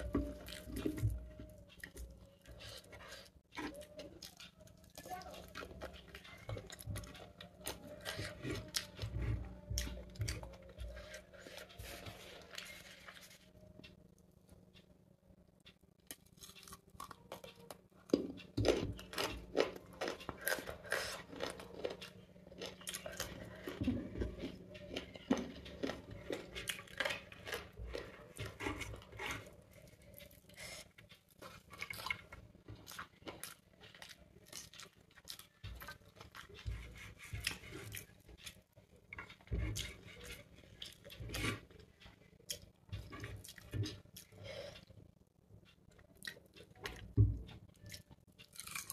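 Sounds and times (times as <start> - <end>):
chewing and mouth sounds: 16.0 - 48.9.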